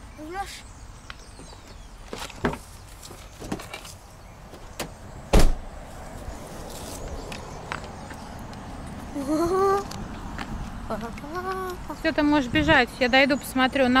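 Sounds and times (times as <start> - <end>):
car door clicks: 4.6 - 5.6
car door thud: 4.6 - 5.7.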